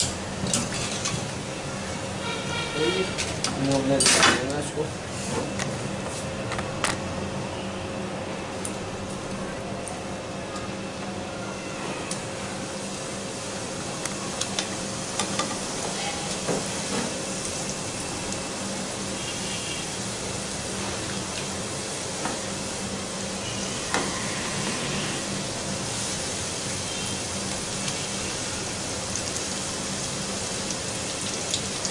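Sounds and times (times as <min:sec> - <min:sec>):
dough deep-frying in oil: 0:08.4 - 0:31.9.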